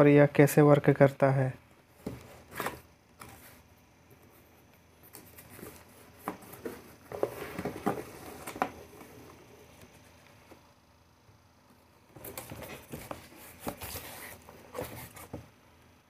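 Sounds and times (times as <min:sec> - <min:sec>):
cardboard and packaging rustling: 0:01.9 - 0:10.7, 0:12.0 - 0:15.6
cardboard box being opened: 0:05.2 - 0:10.0, 0:12.2 - 0:15.5.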